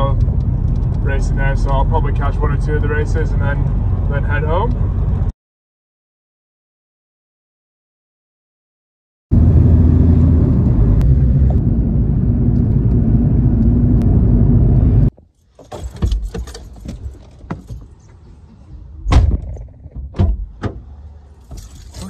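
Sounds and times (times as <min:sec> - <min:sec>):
car engine and road noise: 0:00.0 - 0:05.3, 0:09.3 - 0:22.0.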